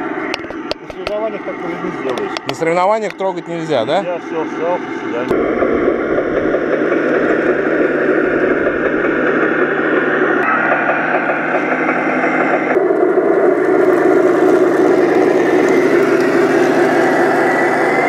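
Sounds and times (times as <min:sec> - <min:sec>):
model tank motors whirring: 0:12.7 - 0:18.0.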